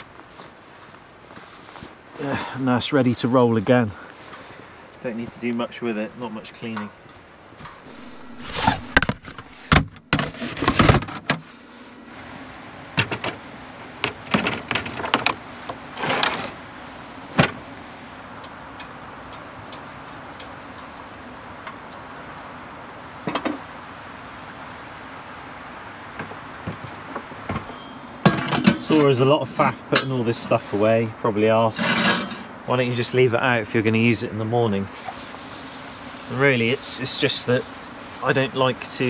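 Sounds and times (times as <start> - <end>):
knocks and clatters of storage boxes: 8.4 - 11.4, 13.0 - 13.4, 14.0 - 16.6.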